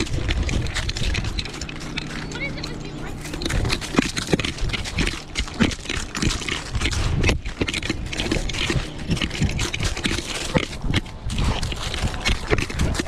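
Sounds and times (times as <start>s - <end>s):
dog paws crunching on gravel: 0.0s - 13.0s.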